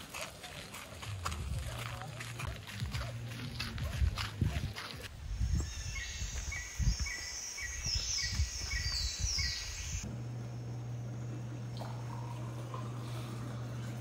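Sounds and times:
birds singing: 0:05.4 - 0:10.1
steady low hum: 0:08.4 - 0:14.0.

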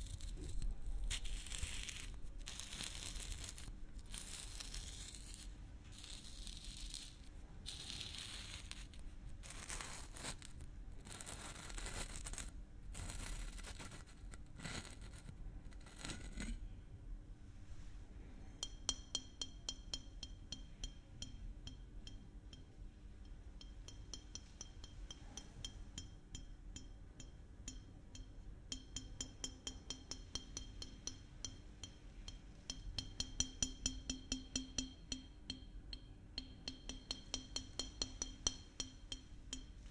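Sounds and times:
screw cap scraping glass bottle neck: 0:00.0 - 0:10.6
taps on small glass bottle: 0:18.6 - 0:22.8, 0:23.6 - 0:39.9.

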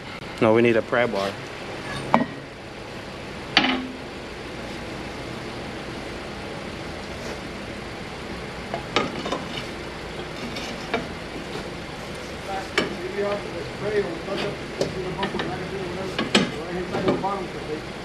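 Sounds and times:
steady hiss: 0:00.0 - 0:18.0
metal tools clanking: 0:01.8 - 0:02.4.

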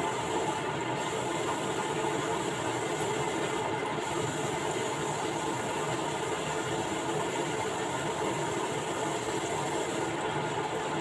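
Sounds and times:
chicken deep-frying in hot oil: 0:00.0 - 0:11.0.

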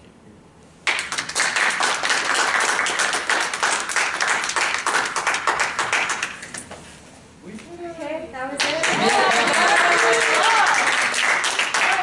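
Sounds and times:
people applauding: 0:00.8 - 0:06.6, 0:08.6 - 0:12.0.

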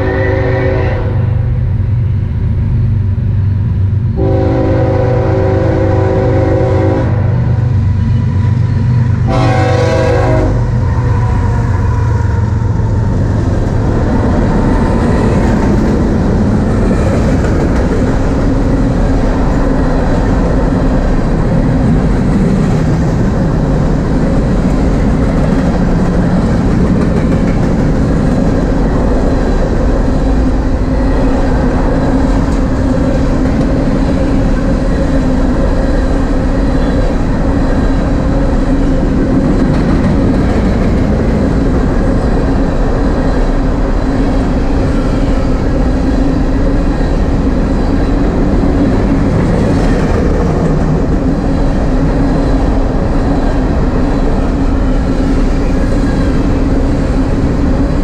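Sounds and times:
train horn blasts: 0:00.0 - 0:01.4, 0:04.2 - 0:07.4, 0:09.3 - 0:10.8
diesel locomotive engines rumbling: 0:00.0 - 0:58.0
train wheels on rails: 0:00.0 - 0:58.0.

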